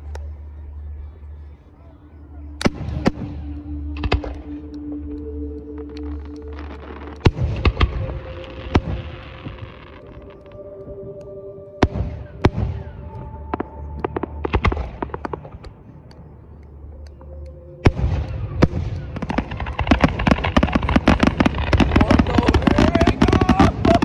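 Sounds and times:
fireworks booming and crackling: 0:06.0 - 0:10.4, 0:17.8 - 0:24.0.

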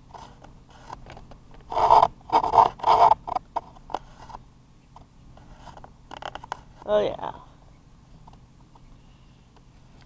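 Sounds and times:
rasping scrapes: 0:01.6 - 0:04.4.

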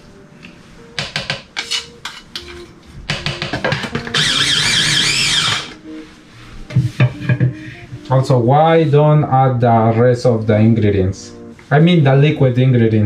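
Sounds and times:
plucked-string background music: 0:00.0 - 0:13.0
food processor whining: 0:04.0 - 0:05.8.

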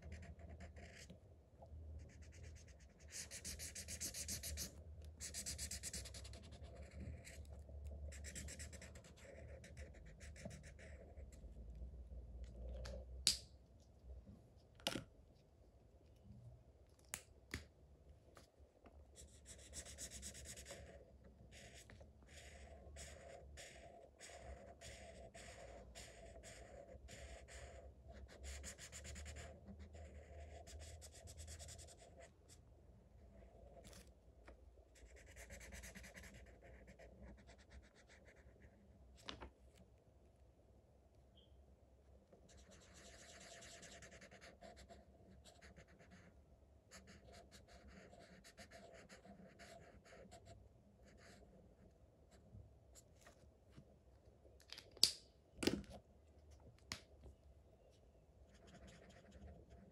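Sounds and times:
marker scratching on paper: 0:00.0 - 0:01.1, 0:02.0 - 0:07.4, 0:08.1 - 0:11.4, 0:19.2 - 0:32.3, 0:35.0 - 0:38.7, 0:42.5 - 0:46.3, 0:46.9 - 0:51.4, 0:58.5 - 0:59.9.

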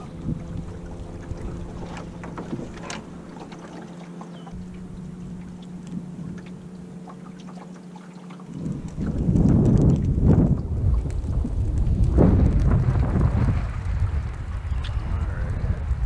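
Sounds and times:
wind on microphone: 0:00.0 - 0:03.4, 0:04.5 - 0:07.2, 0:08.4 - 0:16.0
faint steady drone: 0:00.0 - 0:08.5
water lapping against a hull: 0:00.0 - 0:16.0
small ticks and slaps: 0:07.2 - 0:12.9.

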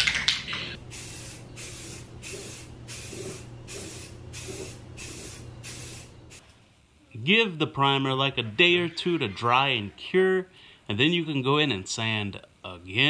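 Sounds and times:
aerosol spray can hissing: 0:00.9 - 0:06.4.

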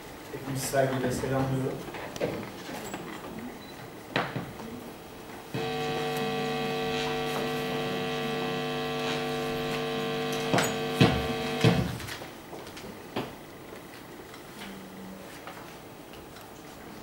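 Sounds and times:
loud electrical mains buzz: 0:05.0 - 0:12.5
sharp knocks: 0:10.5 - 0:12.0.

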